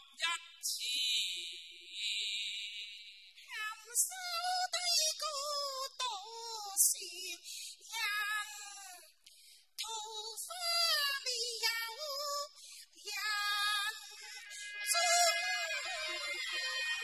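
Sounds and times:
woman singing opera: 3.5 - 9.1, 9.8 - 17.0.

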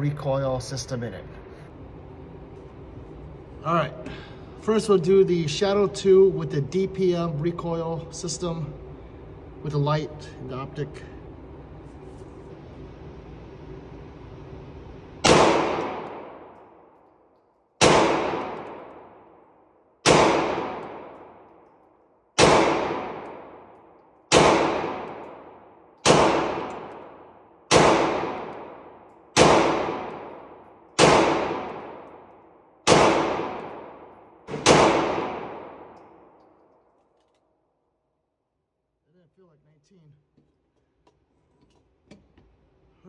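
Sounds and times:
pistol shots echoing indoors: 15.1 - 38.3.

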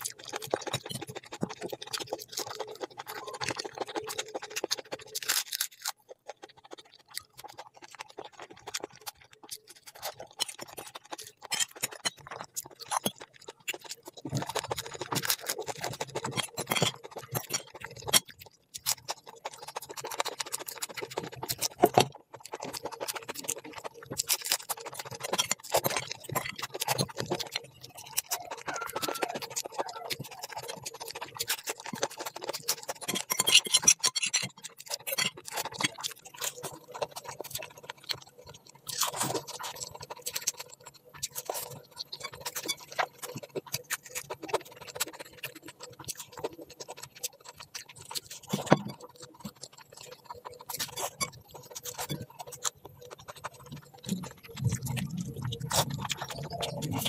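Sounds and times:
person chewing food: 0.0 - 57.0.

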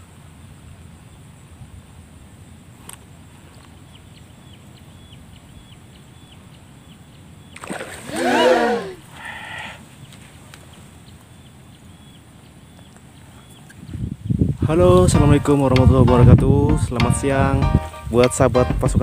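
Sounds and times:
fish splash: 7.6 - 8.6
person shouting: 8.0 - 9.1
short vocal sound: 8.1 - 9.8.

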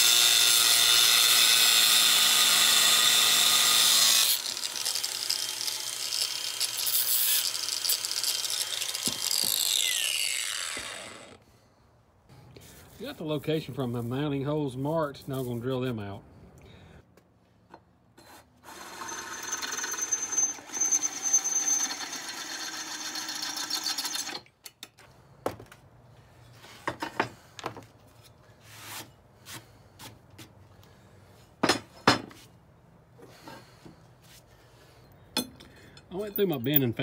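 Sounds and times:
power drill grinding through metal: 0.0 - 11.4, 18.6 - 24.4.

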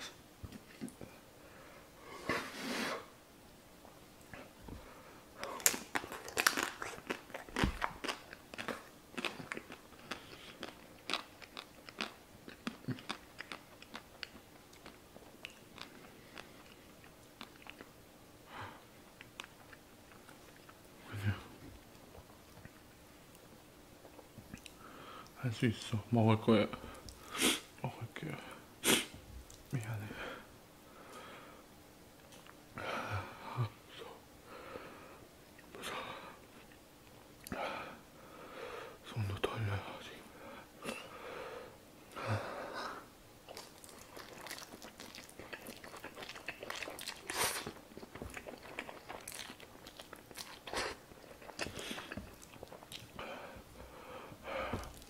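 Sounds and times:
chewing noodles with mouth smacks: 5.6 - 17.9, 43.5 - 53.2.

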